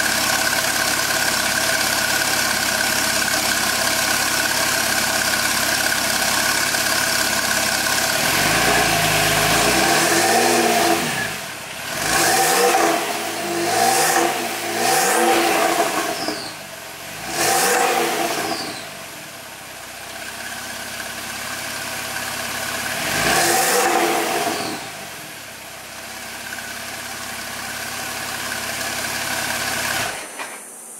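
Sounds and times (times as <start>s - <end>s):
sports car engine idling and revving: 0.0s - 30.3s.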